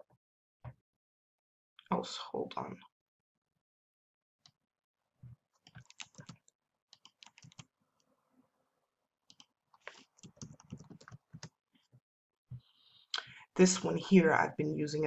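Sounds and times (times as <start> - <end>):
typing on keyboard: 5.7 - 6.4, 7.0 - 7.7, 9.3 - 11.5.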